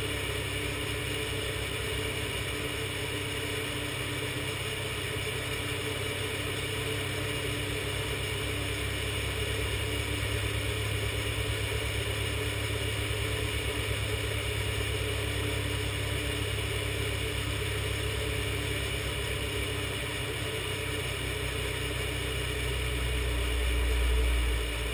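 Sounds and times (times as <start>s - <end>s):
car engine idling: 0.0s - 24.9s.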